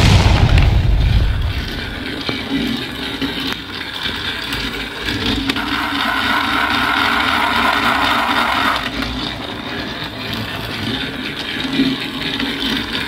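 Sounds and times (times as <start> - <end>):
loud toy tunnel blast: 0.0 - 3.0, 5.6 - 10.2
toy train whirring hum: 3.0 - 13.0.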